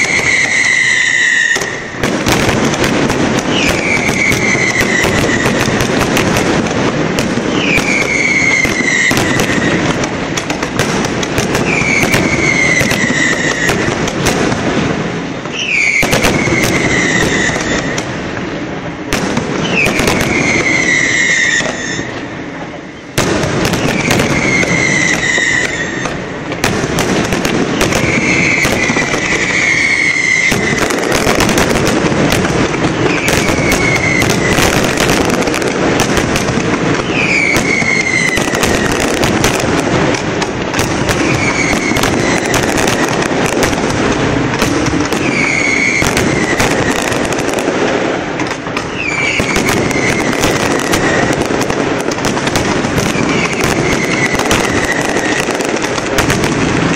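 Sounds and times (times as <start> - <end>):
high falling firework whistle: 0.0 - 2.5, 3.4 - 6.2, 7.4 - 10.0, 11.4 - 14.3, 15.4 - 18.2, 19.6 - 26.4, 27.7 - 36.1, 36.9 - 39.7, 40.7 - 43.8, 45.0 - 47.6, 48.8 - 51.5, 52.8 - 56.4
fireworks bangs and crackling: 0.0 - 56.9.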